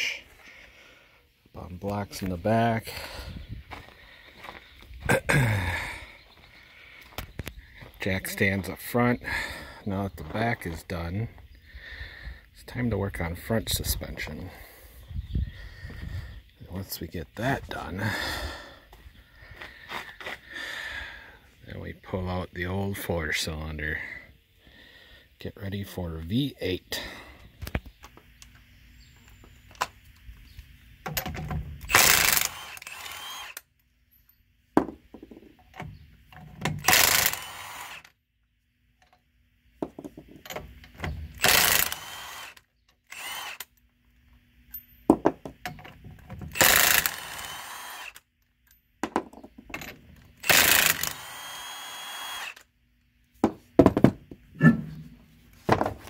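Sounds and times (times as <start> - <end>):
impact wrench bursts: 31.2 - 33.6, 36.7 - 38.1, 41.2 - 43.7, 46.4 - 48.2, 50.3 - 52.7.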